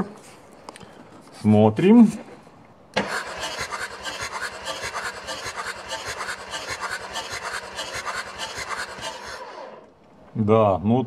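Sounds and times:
diesel engine cranking by starter: 0:03.0 - 0:09.9.

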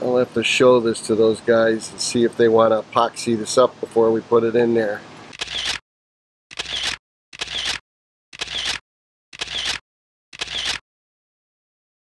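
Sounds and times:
camera shutter click: 0:05.3 - 0:05.8, 0:06.5 - 0:07.8, 0:08.4 - 0:08.8, 0:09.4 - 0:09.8, 0:10.4 - 0:10.8.

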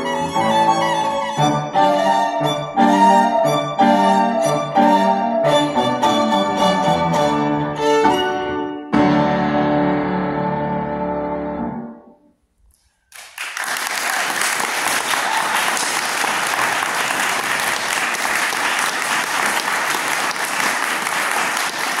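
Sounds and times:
violin and piano chord: 0:00.0 - 0:12.2
audience applause: 0:13.1 - 0:22.0.

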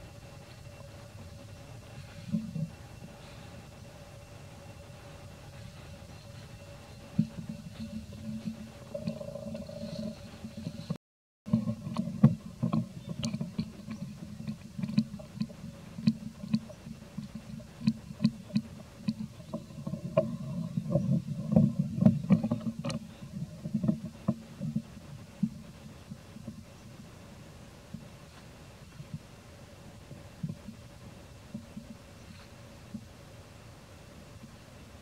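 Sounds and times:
sharp clicks and crackles: 0:11.5 - 0:20.3.

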